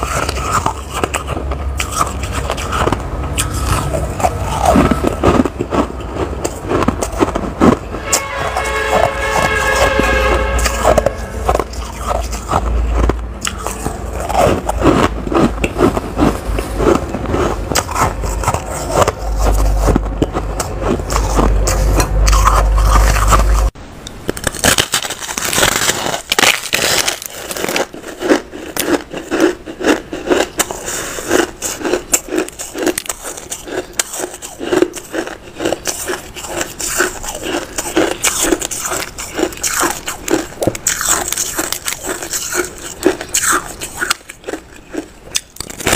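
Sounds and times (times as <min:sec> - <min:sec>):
chewing crunchy ice: 0:00.0 - 0:23.8, 0:24.4 - 0:45.9
low hum: 0:00.0 - 0:26.4.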